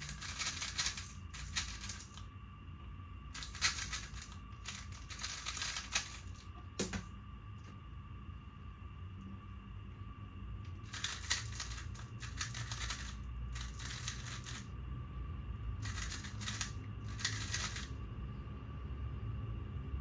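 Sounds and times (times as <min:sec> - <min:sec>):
plastic puzzle cube clacking: 0:00.0 - 0:02.2, 0:03.4 - 0:06.4, 0:10.9 - 0:14.6, 0:15.8 - 0:17.9.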